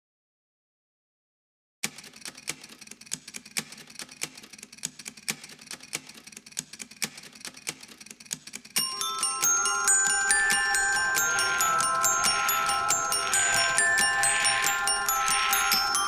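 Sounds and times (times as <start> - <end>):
glockenspiel-like mallet music: 8.8 - 16.0.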